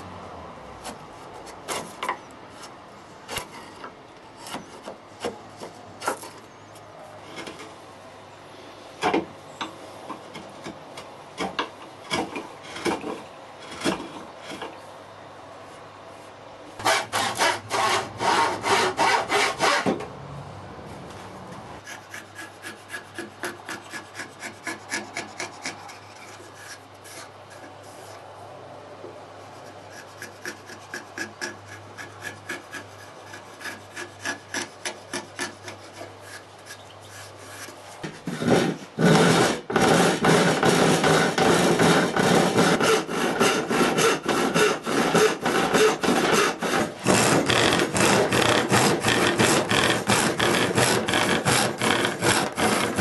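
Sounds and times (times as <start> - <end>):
file scraping wood: 11.4 - 14.8, 16.8 - 20.0, 21.8 - 28.2, 29.4 - 53.0
rasping strokes on wood: 16.8 - 19.9, 21.8 - 28.2, 29.4 - 53.0.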